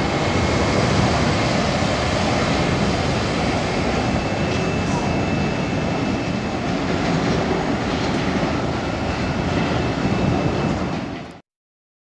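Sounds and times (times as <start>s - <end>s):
faint high whine: 0.0s - 6.6s
jet engines at takeoff power: 0.0s - 11.4s.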